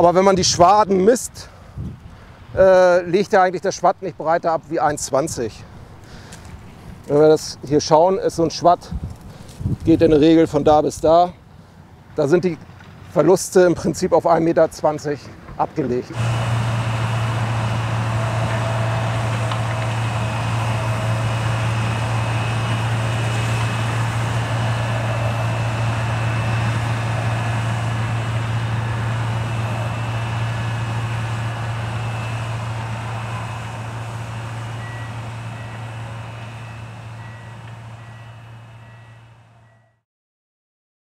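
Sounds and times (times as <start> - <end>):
combine harvester running: 11.6 - 39.9.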